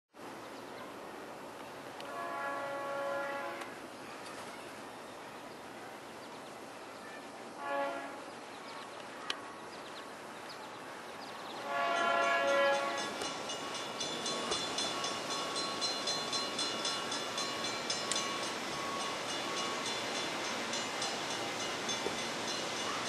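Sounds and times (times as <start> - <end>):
locomotive air horn: 2.0 - 3.8, 7.6 - 8.2, 11.6 - 13.2
bell ringing: 12.0 - 23.0.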